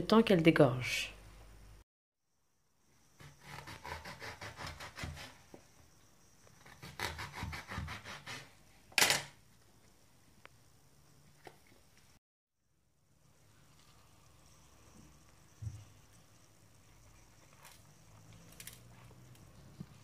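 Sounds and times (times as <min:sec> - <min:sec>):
knife sawing through vegetables: 0:03.2 - 0:05.4, 0:06.7 - 0:08.6.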